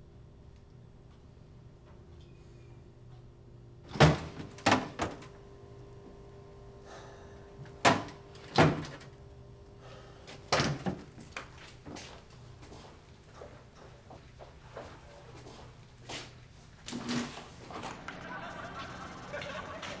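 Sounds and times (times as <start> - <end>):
refrigerator door opening and shutting: 3.9 - 5.4, 7.6 - 9.2, 10.4 - 11.2.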